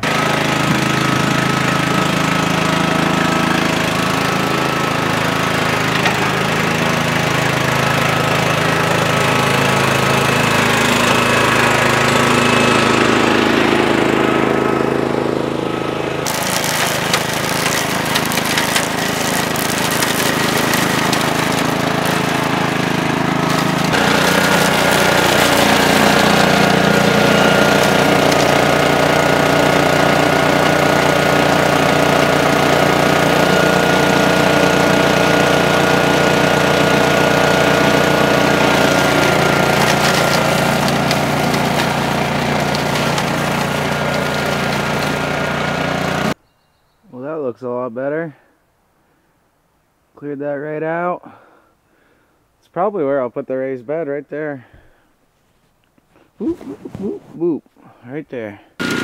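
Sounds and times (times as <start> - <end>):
mower engine running: 0.0 - 46.4, 58.8 - 59.0.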